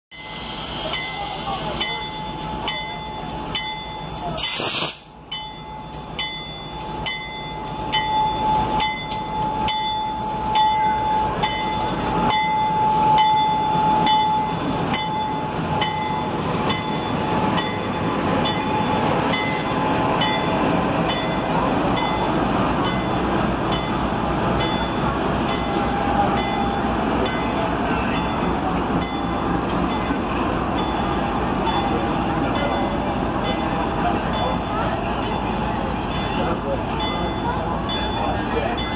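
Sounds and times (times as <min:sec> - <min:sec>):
diesel locomotive engine running: 0:00.1 - 0:38.9
short air hiss: 0:04.4 - 0:05.1.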